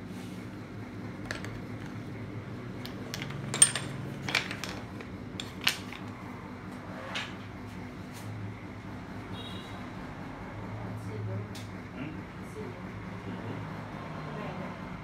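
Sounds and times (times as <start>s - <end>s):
metal hammers clinking: 2.8s - 4.8s.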